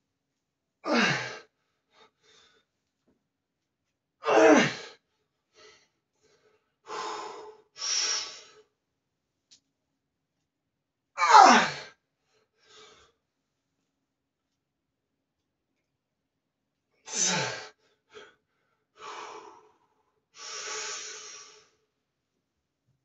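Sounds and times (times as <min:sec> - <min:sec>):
man grunting with effort: 0:00.9 - 0:01.4, 0:04.2 - 0:04.9, 0:11.2 - 0:11.8
hard breathing: 0:05.5 - 0:08.6, 0:17.2 - 0:21.7.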